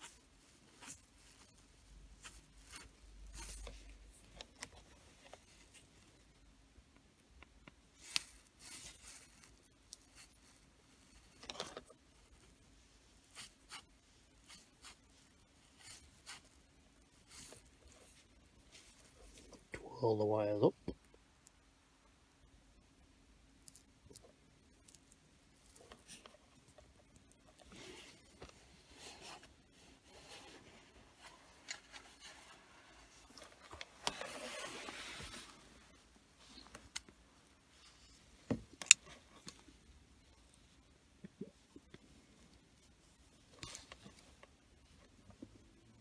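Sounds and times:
fingers rustling insulated wires: 0.0s - 19.8s, 23.6s - 45.2s.

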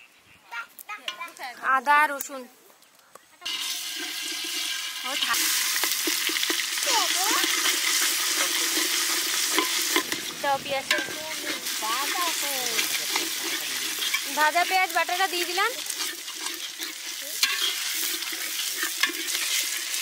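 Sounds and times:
metal spoon scraping a pot: 3.4s - 20.0s
paste sizzling in hot oil: 3.4s - 20.0s.

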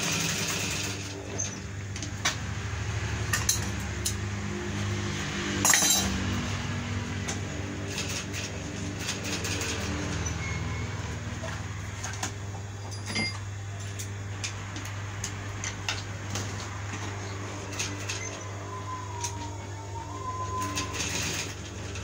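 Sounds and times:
sewing machine running: 0.0s - 1.6s, 7.4s - 12.2s, 16.4s - 19.4s, 20.2s - 22.0s.

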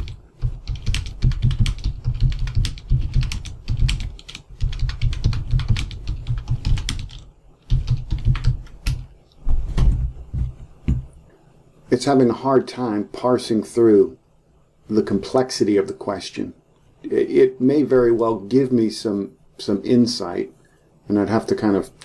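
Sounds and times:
typing on computer keyboard: 0.0s - 9.0s.

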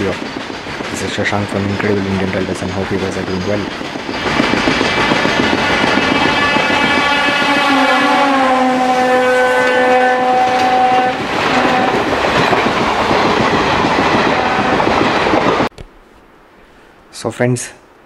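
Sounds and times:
train coaches rushing past: 0.0s - 15.7s
locomotive horn: 4.8s - 12.1s, 14.3s - 14.9s.

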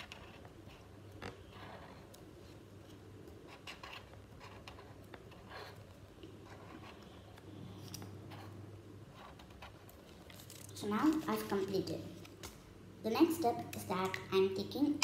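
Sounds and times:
marker pen scratching on paper: 0.0s - 10.2s.

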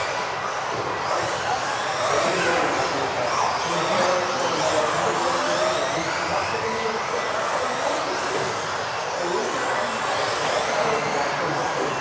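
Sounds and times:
rc car motors whining: 0.0s - 12.0s.

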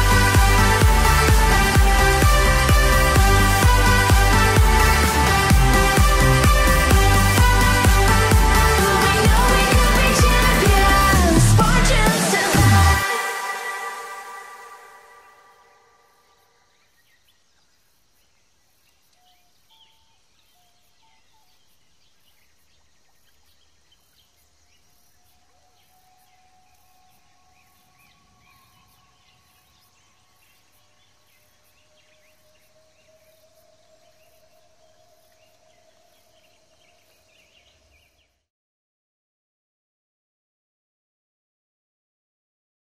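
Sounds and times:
insects calling: 13.1s - 38.3s
long steady bird calls: 14.0s - 38.5s.

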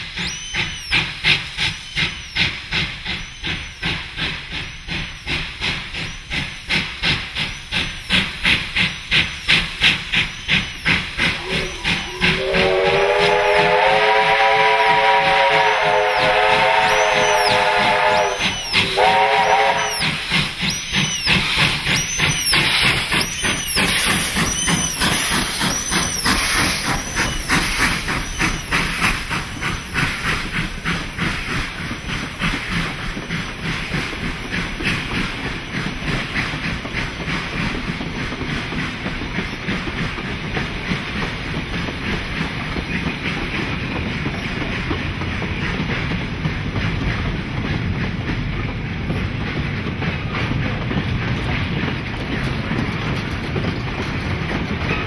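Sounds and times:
steam hiss: 0.0s - 55.0s
steam locomotive exhaust beats: 0.0s - 55.0s
train wheels clickety-clack: 0.0s - 55.0s
steam whistle blast: 11.4s - 20.2s.

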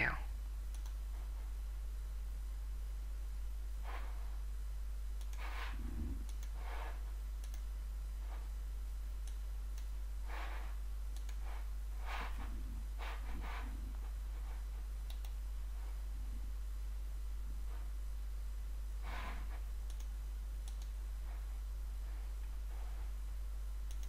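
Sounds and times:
low mains hum: 0.0s - 24.0s
computer mouse clicks: 0.7s - 1.0s, 5.2s - 7.7s, 9.2s - 12.5s, 15.0s - 15.4s, 19.2s - 21.0s
soft breaths near microphone: 3.7s - 4.5s, 5.2s - 7.3s, 10.2s - 18.2s, 18.9s - 19.8s, 20.9s - 23.5s.

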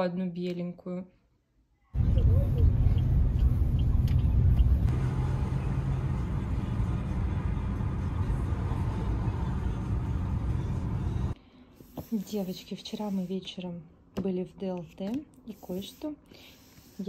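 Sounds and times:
vehicle rumble: 2.0s - 11.4s.

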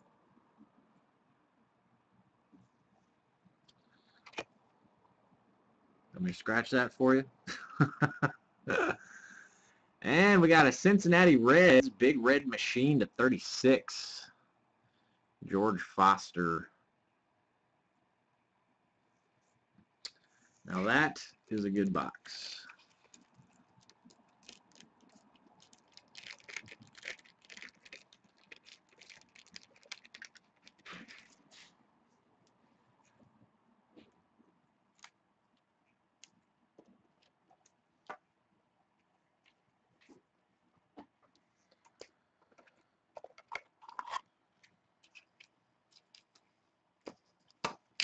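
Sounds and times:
plastic bag crinkling: 22.5s - 31.5s.

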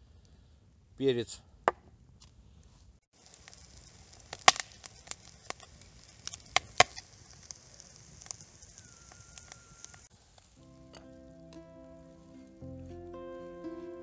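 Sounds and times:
sharp fire pops: 3.2s - 10.1s
burning log crackling: 3.2s - 14.0s.

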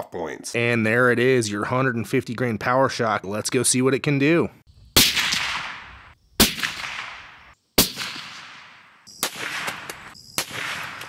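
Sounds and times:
rifle shots with echo: 5.0s - 11.0s
sharp cracks: 5.0s - 11.0s.

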